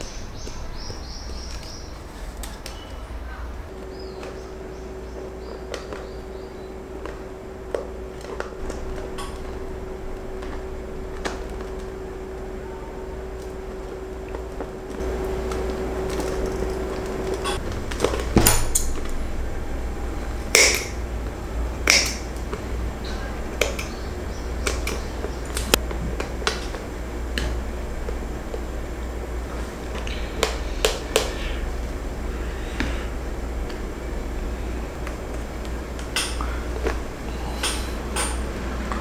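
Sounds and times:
low steady hum: 0.0s - 39.0s.

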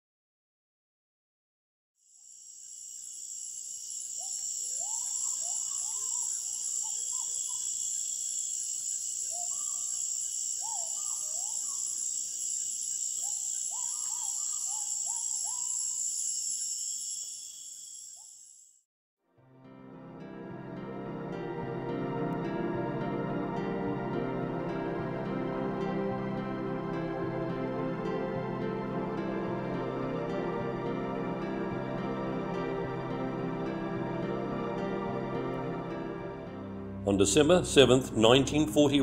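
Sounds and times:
insect chorus: 2.0s - 18.8s
bird calling rising notes: 4.2s - 7.7s.

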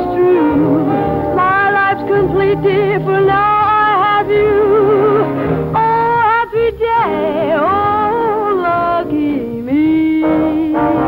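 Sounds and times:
dance orchestra playing: 0.0s - 6.1s.

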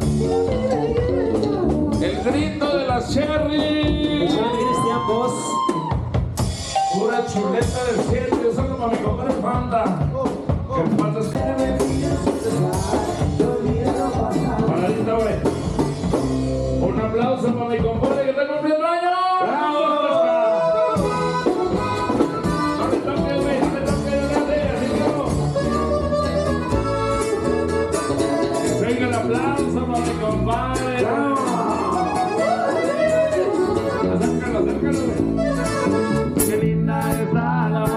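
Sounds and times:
sustained bass notes: 0.0s - 5.4s, 6.2s - 18.0s, 20.8s - 37.9s
drums playing steady beat: 0.0s - 18.4s, 21.0s - 37.9s
live band music: 0.0s - 18.5s, 19.4s - 37.9s
accordion: 20.2s - 37.9s.

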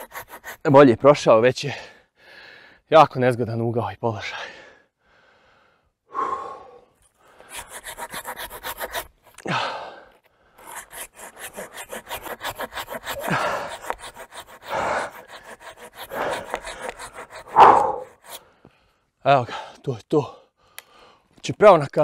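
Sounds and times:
hand saw rasping through wood: 0.0s - 0.8s, 7.4s - 9.2s, 10.6s - 18.4s.

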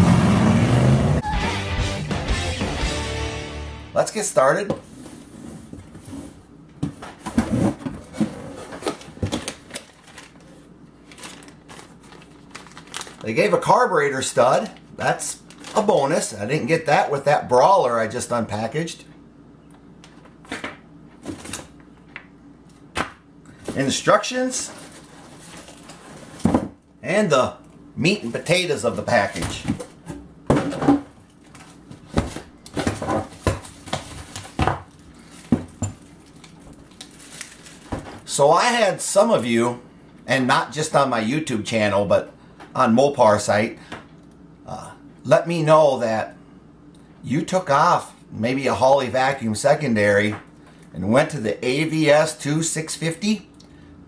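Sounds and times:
packaging crinkling and rustling: 8.7s - 13.6s, 14.6s - 16.0s, 24.6s - 26.4s, 31.3s - 38.3s.

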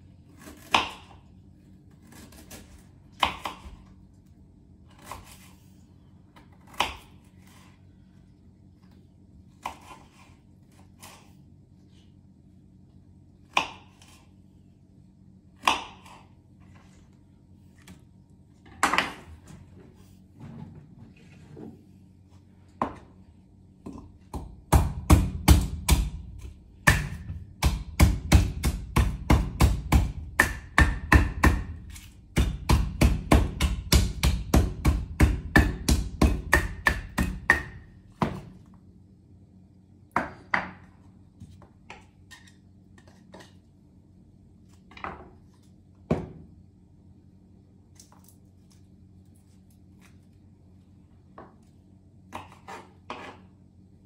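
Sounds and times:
knife chopping on wooden board: 2.1s - 3.8s, 23.9s - 38.6s
pestle pounding in wooden mortar: 24.3s - 26.2s, 26.8s - 38.5s.

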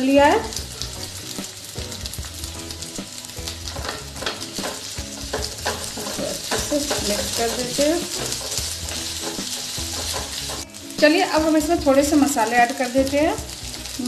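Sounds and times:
oil sizzling: 0.0s - 14.0s
spatula scraping a pan: 3.7s - 10.8s.

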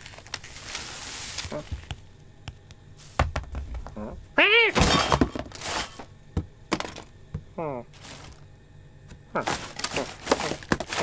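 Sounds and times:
groceries thudding and knocking: 1.4s - 4.1s, 4.8s - 8.5s, 9.1s - 11.0s.

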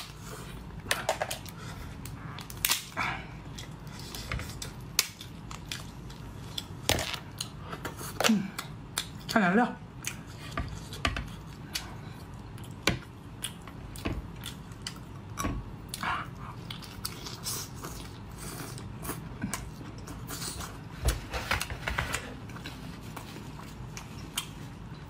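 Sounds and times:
person chewing with wet smacks: 3.4s - 20.9s, 22.5s - 25.0s.

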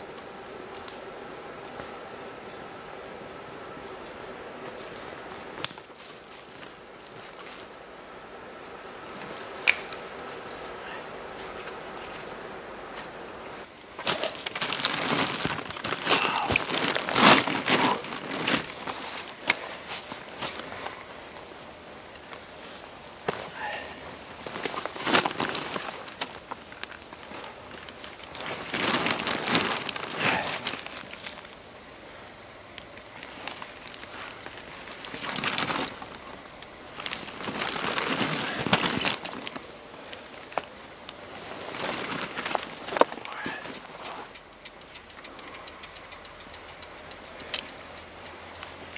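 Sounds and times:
clothing and gear rustling: 3.9s - 7.9s, 9.0s - 21.5s, 22.2s - 31.6s, 33.1s - 44.4s.

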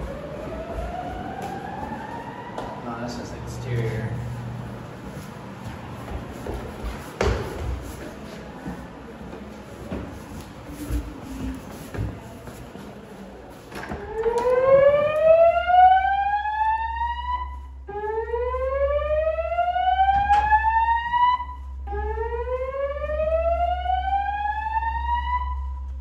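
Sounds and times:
fire alarm slow-whoop tone: 0.0s - 4.5s, 14.0s - 26.0s.

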